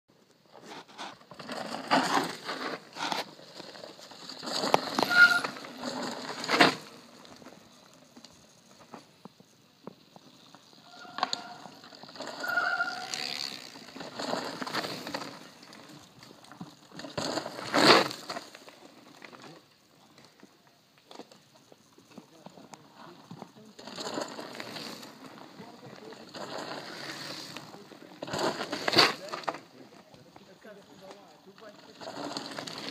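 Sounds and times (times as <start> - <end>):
bikes rattling: 0.3 - 32.9
bike tyres crunching on leaves: 0.5 - 20.4, 21.1 - 32.9
short high squeals: 4.8 - 5.8, 10.8 - 13.8.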